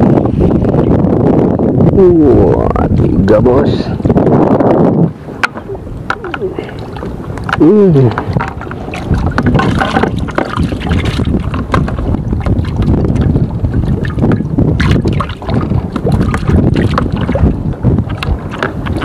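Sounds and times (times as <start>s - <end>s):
wind buffeting microphone: 0.0s - 19.0s
water lapping: 5.0s - 19.0s.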